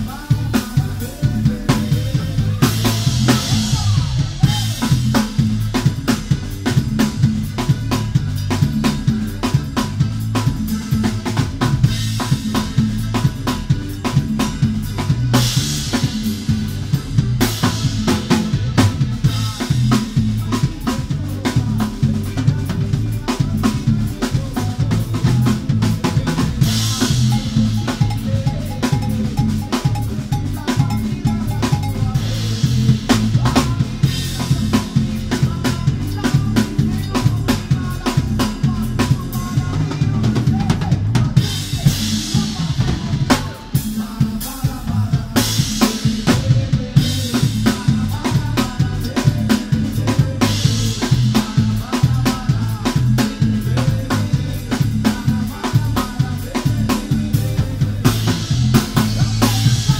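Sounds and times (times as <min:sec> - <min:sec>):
drum kit beat: 0:00.0 - 0:59.9
live band music: 0:00.0 - 0:59.9.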